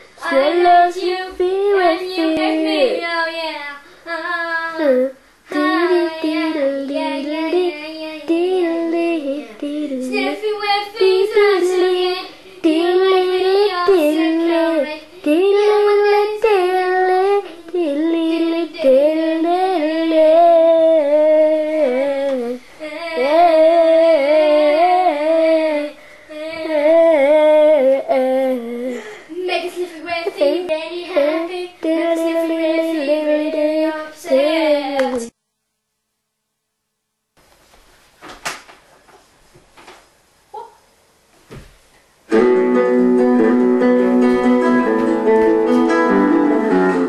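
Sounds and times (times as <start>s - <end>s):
child singing: 0.2s - 35.4s.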